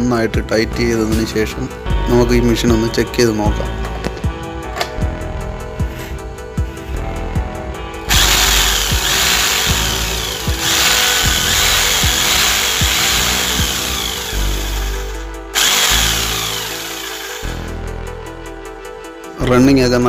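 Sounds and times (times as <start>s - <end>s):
electric demolition hammer running: 8.1s - 17.7s.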